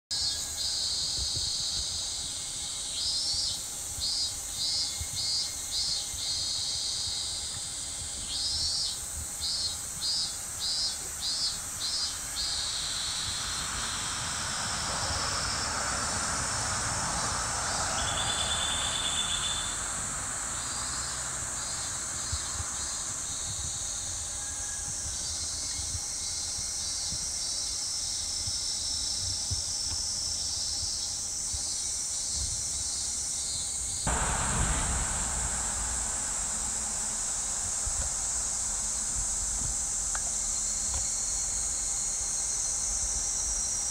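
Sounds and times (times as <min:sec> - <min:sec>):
high-pitched insect chorus: 0:00.1 - 0:43.9
broad rushing sound: 0:12.6 - 0:21.6, 0:34.1 - 0:40.8.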